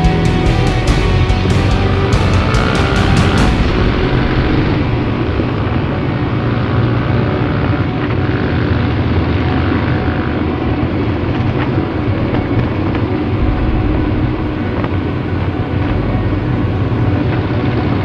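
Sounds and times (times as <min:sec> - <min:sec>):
motorcycle engine running: 0:00.0 - 0:18.0
wind noise on microphone: 0:01.8 - 0:07.3, 0:10.8 - 0:18.0.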